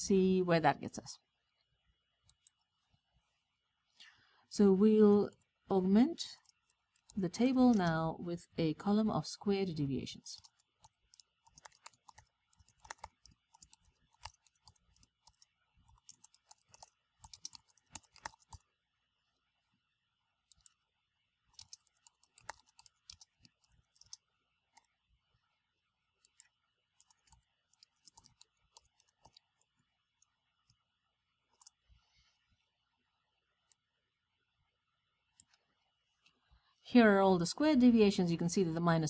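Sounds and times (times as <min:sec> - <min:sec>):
faint keyboard typing: 0:02.2 - 0:02.8, 0:04.8 - 0:09.0, 0:10.0 - 0:18.8, 0:20.4 - 0:20.8, 0:21.4 - 0:25.1, 0:26.1 - 0:32.3, 0:35.2 - 0:36.5.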